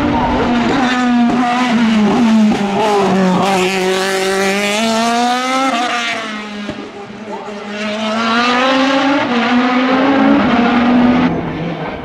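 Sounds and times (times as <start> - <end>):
race car engine at high revs: 0.0 - 12.0.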